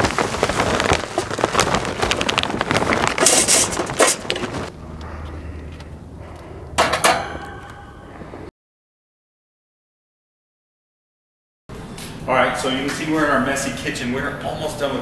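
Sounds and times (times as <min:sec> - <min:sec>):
charcoal pouring into metal cylinder: 0:00.0 - 0:04.5.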